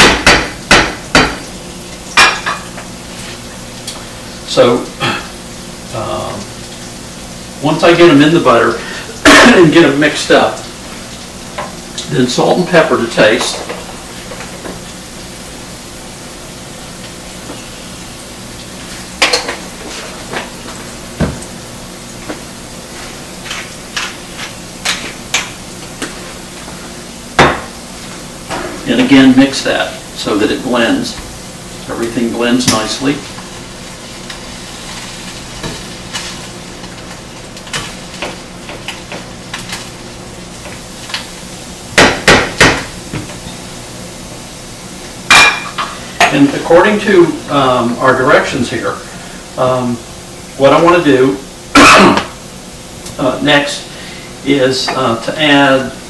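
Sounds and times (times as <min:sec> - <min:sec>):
spatula knocking on pan: 0:00.0 - 0:01.5, 0:27.4 - 0:27.7, 0:42.0 - 0:43.3
onions sizzling in butter: 0:00.0 - 0:56.0.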